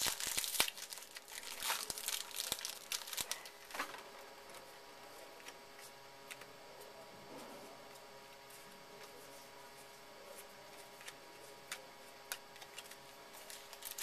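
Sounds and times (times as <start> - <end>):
wrapper crinkling and tearing: 0.0 - 4.0, 12.6 - 14.0.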